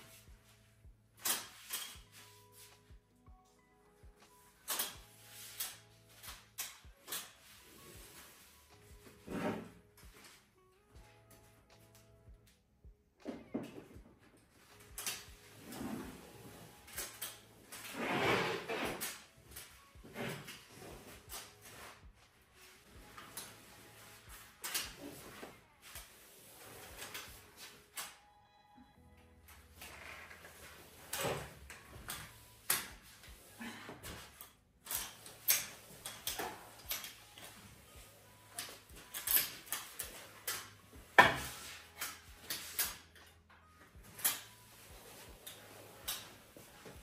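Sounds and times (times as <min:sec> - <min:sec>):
rustling swish of mop: 0:00.0 - 0:03.0
mop swishing on wooden floor: 0:14.6 - 0:27.9, 0:29.6 - 0:42.9, 0:43.9 - 0:47.0
mop knocks and clicks on floor: 0:41.2 - 0:42.8.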